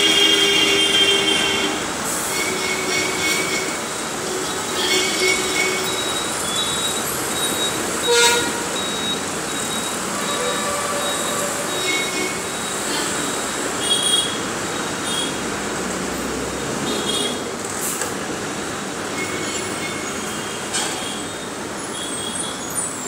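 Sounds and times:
vehicle horns honking: 0.0 - 6.1, 8.0 - 8.8, 10.1 - 12.6, 13.8 - 15.4, 16.8 - 17.5
bus road noise: 0.0 - 23.0.

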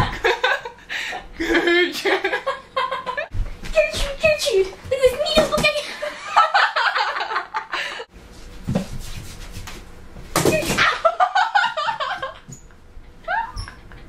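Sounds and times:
girl laughing and squealing: 10.8 - 12.5, 13.2 - 14.0.

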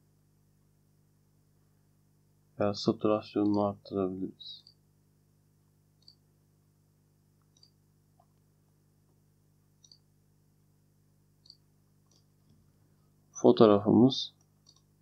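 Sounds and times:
low steady hum: 0.0 - 15.0
computer mouse clicks: 6.0 - 6.2, 7.4 - 7.8, 9.8 - 10.1, 11.4 - 12.3, 14.6 - 14.9.

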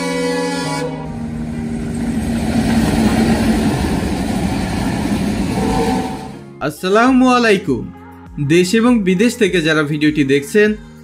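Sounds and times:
music: 0.0 - 4.6, 5.4 - 11.0
train wheels rumbling on rails: 1.1 - 6.5.

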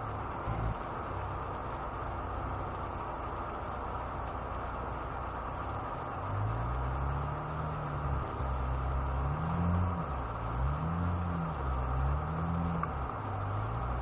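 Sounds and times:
off-road vehicle engine revving: 0.0 - 1.5, 5.6 - 14.0.

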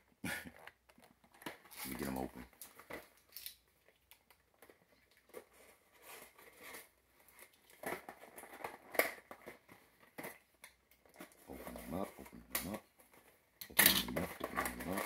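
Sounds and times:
packaging crinkling and clicking: 0.5 - 5.6, 6.3 - 15.0
packaging snapping: 13.6 - 15.0.

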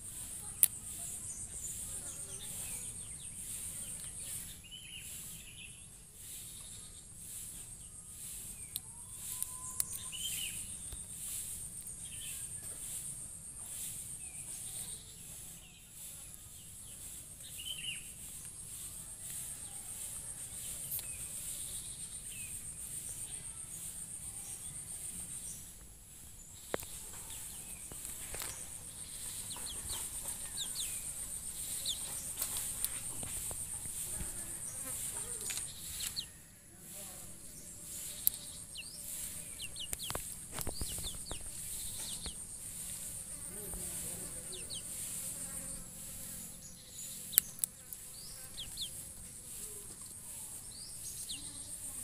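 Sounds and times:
insects trilling: 0.0 - 52.0
short bird chirps: 7.9 - 10.8, 35.3 - 36.4.

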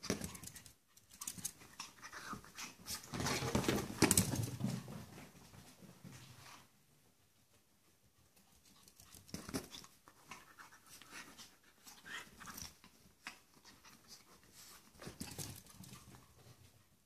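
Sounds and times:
dogs scuffling on a bed: 2.8 - 6.7.

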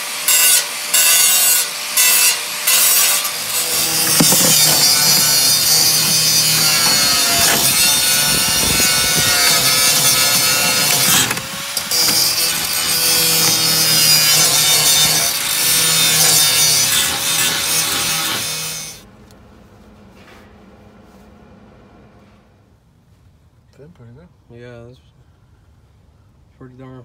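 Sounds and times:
power tool whining on sheet metal: 0.0 - 19.1.

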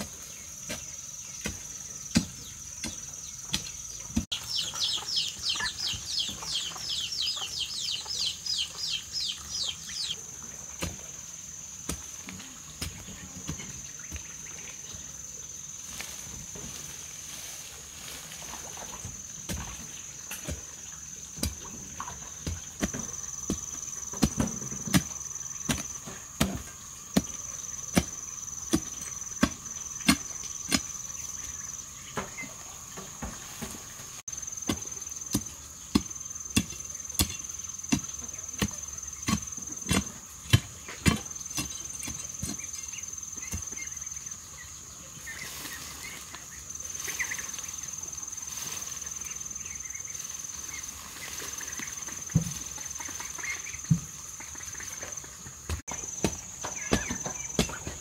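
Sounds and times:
high insect drone: 0.0 - 58.0
hoe chopping into earth: 0.7 - 4.4, 34.6 - 42.7, 55.7 - 58.0.

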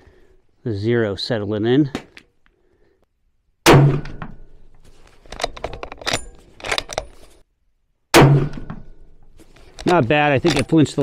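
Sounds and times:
loud gunshot: 3.6 - 4.3, 8.1 - 8.8
rifle bolt metallic clicks: 5.3 - 7.2.

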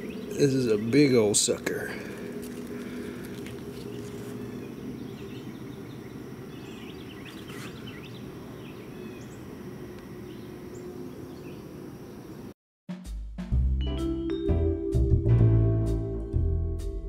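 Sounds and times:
bird chirps: 0.0 - 1.4, 3.7 - 12.4
steady low hum: 0.0 - 12.5.

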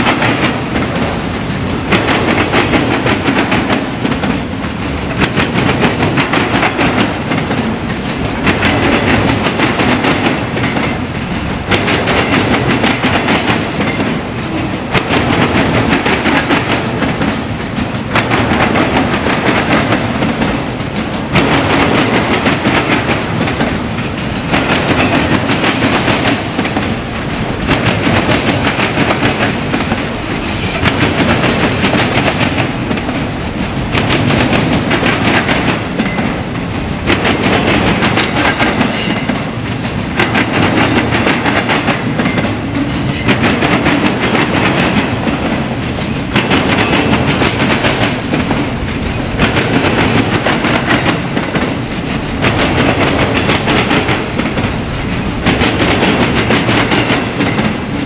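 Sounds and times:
freight train cars rolling: 0.0 - 58.0
wheels clicking over rail joints: 0.0 - 58.0
high wheel squeal: 32.1 - 34.8.

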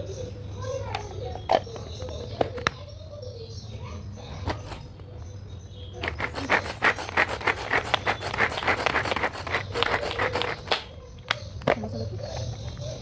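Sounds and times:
hand chopper clicking and clattering: 6.0 - 10.9.

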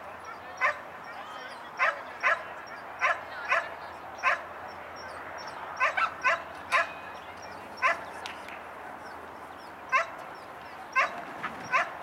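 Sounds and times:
dog barking: 0.2 - 1.2, 1.8 - 4.5, 5.8 - 7.0, 7.8 - 8.0, 9.9 - 10.2, 11.0 - 12.0.

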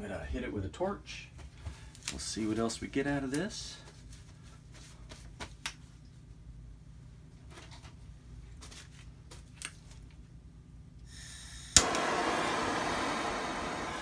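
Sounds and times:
gas torch hissing: 11.0 - 14.0
flame burning with rushing hiss: 11.1 - 14.0
torch igniter click: 11.2 - 14.0.

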